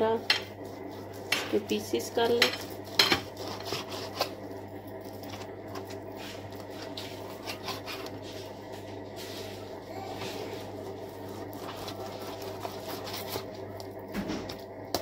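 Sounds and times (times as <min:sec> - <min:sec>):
steady low hum: 0:00.0 - 0:15.0
knife sawing through meat: 0:07.1 - 0:08.2.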